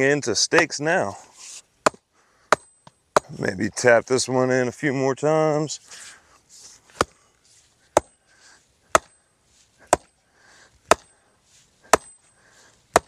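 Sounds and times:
stake being hammered into ground: 0.5 - 0.8, 1.8 - 3.3, 8.0 - 8.2, 8.9 - 9.2, 9.9 - 10.1, 10.9 - 11.1, 11.9 - 12.2.

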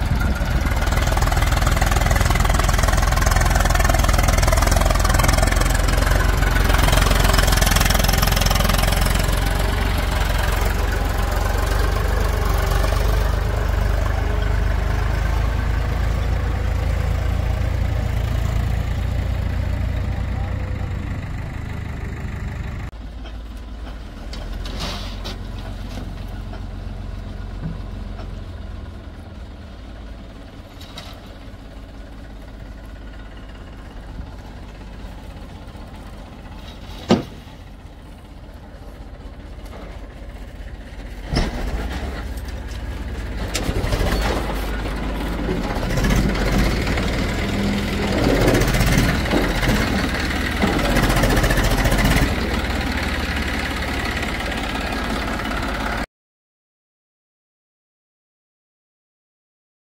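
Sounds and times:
tractor diesel engine running: 0.0 - 56.1
soil sliding out: 41.2 - 52.7.

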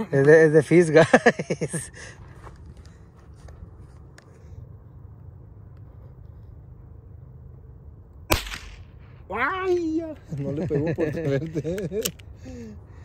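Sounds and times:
low outdoor rumble: 0.0 - 13.0
rifle shot crack: 8.3 - 9.1.

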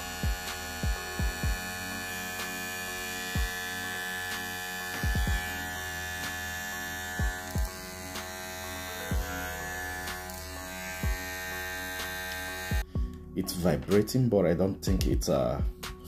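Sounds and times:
hair clipper buzzing: 0.0 - 12.9.

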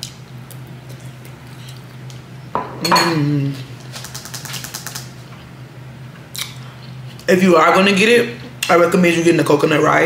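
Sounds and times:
cutlery clinking on ceramic bowl: 2.6 - 3.2
person humming: 3.0 - 3.7.

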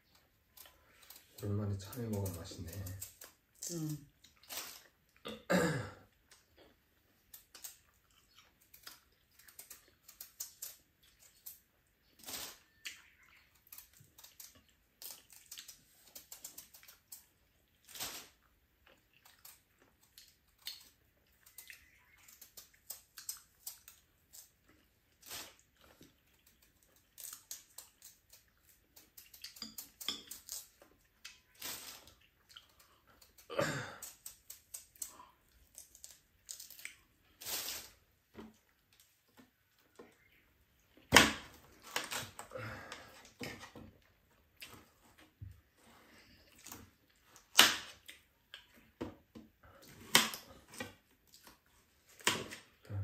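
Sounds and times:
chewing: 6.0 - 37.4.

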